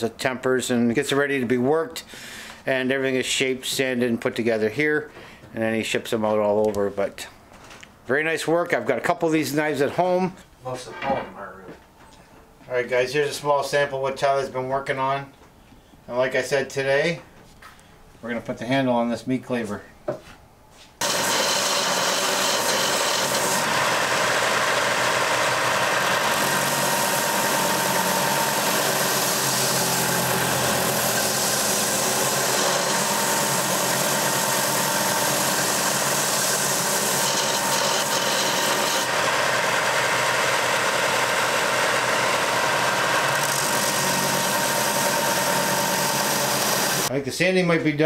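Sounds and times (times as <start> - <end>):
belt sander sanding wood: 21.0 - 47.1.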